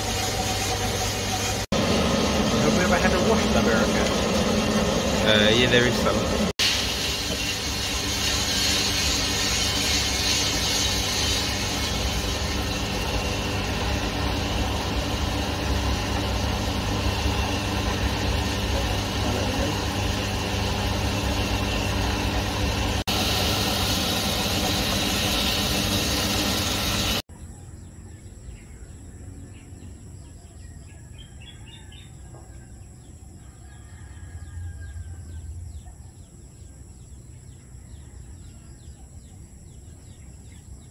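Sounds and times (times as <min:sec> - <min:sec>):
coffee roaster fan and motor hum: 0:00.0 - 0:27.2, 0:30.2 - 0:40.2
high-pitched whine: 0:00.0 - 0:27.2.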